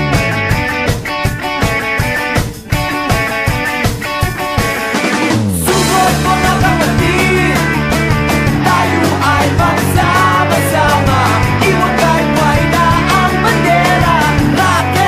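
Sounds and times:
bass notes: 0.0s - 1.8s, 5.0s - 15.0s
guitar slide: 0.0s - 15.0s
rock music with guitar and drums: 0.0s - 15.0s
person singing: 5.7s - 15.0s.

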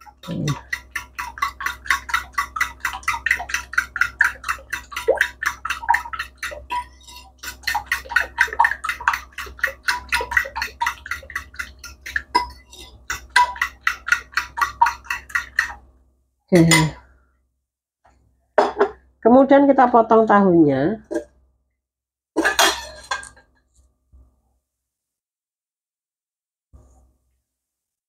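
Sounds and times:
fork beating eggs in bowl: 0.0s - 15.9s.

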